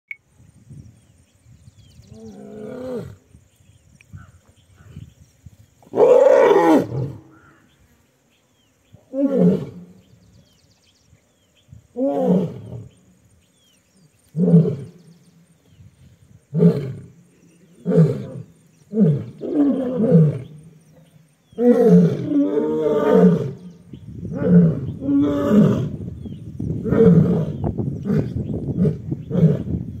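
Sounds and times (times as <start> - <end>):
lions roaring: 21.6 - 23.7.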